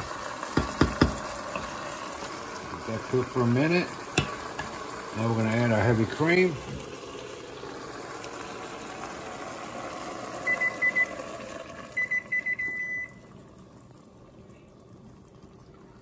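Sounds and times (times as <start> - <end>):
broth simmering hiss: 0.0 - 12.0
electronic appliance beeps: 10.3 - 13.4.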